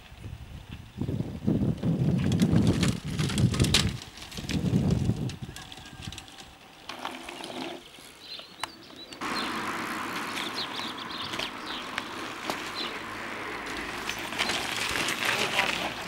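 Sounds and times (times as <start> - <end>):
birds chirping: 5.4 - 16.0.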